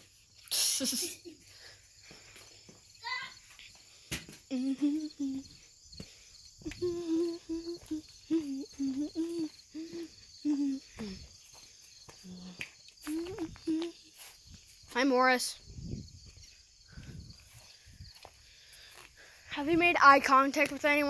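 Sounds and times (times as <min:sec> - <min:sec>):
crickets chirping: 0:00.0 - 0:21.0
person humming low notes: 0:04.5 - 0:05.6, 0:06.6 - 0:11.3, 0:12.2 - 0:14.0.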